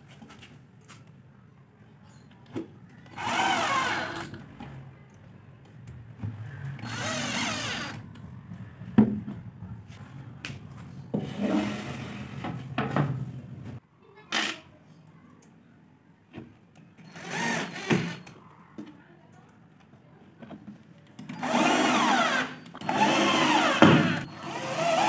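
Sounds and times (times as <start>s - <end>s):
cordless drill whirring: 3.1s - 4.4s, 6.8s - 8.0s, 17.1s - 18.3s, 21.3s - 25.0s.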